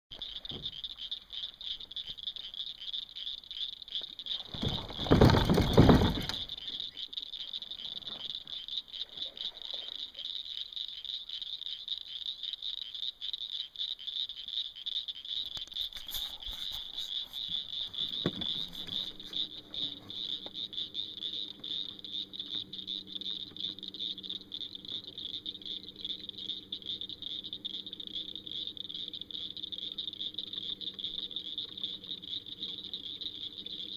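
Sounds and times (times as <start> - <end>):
frogs calling: 0.1 - 33.9
low steady hum: 15.2 - 33.9.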